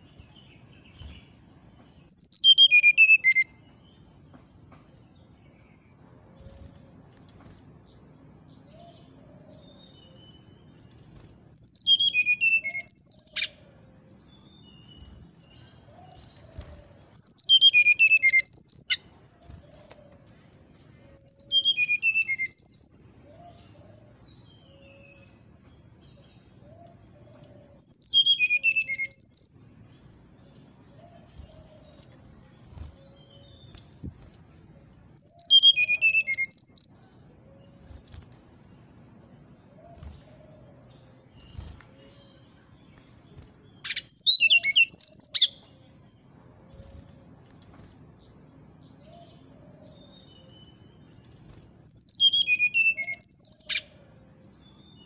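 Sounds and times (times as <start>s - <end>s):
bird song phrases: 0.0s - 55.0s.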